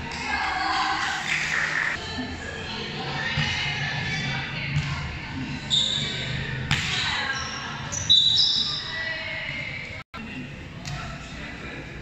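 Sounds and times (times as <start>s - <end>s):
shoe squeaks on court: 5.7s - 6.2s, 7.3s - 8.9s
volleyball hits and bounces: 6.6s - 7.2s.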